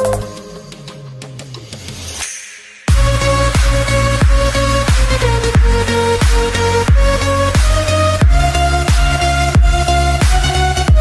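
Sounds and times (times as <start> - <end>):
electronic dance music: 0.0 - 11.0
deep kick drum: 2.9 - 11.0.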